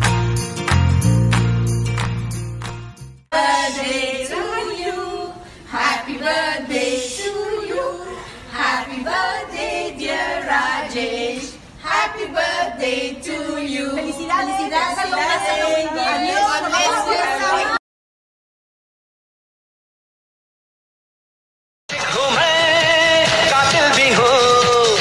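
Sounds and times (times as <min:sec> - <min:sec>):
women singing together: 0:03.3 - 0:17.8.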